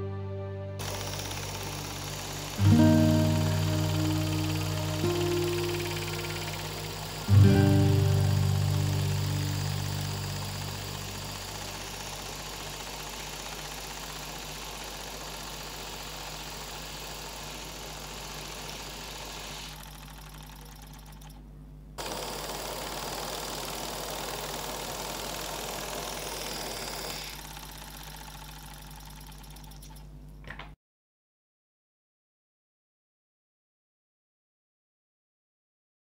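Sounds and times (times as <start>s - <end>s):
small steam engine hissing and clattering: 0.8s - 21.4s, 22.0s - 30.1s.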